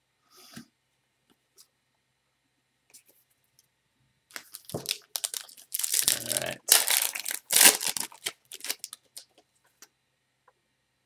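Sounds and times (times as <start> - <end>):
foil wrapper tearing and crinkling: 4.3 - 9.3.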